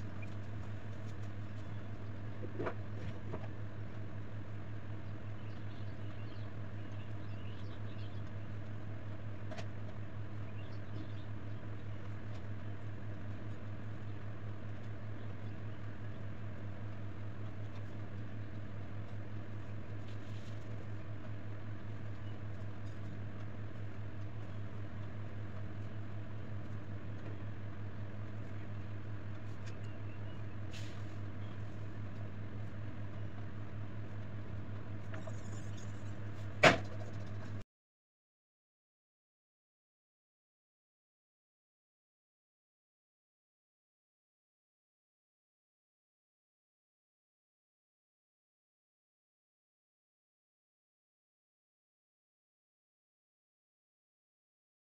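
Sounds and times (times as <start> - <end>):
steady low hum: 0.0 - 37.6.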